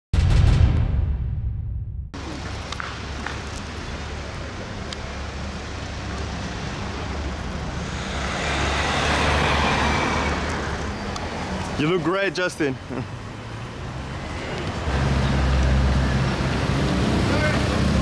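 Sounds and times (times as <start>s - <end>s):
street traffic noise: 2.2s - 18.0s
car passing close by: 6.5s - 11.8s.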